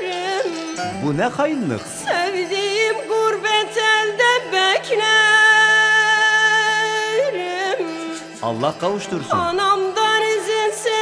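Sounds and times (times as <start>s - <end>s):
ornamented folk melody instrument: 0.0s - 11.0s.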